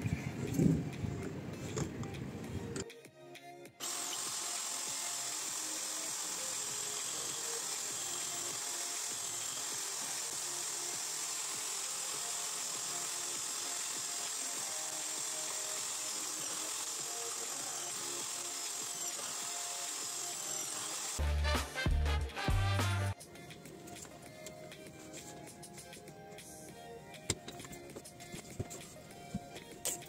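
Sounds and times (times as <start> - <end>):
background music: 0.0 - 30.0
electric drill whining: 3.8 - 21.2.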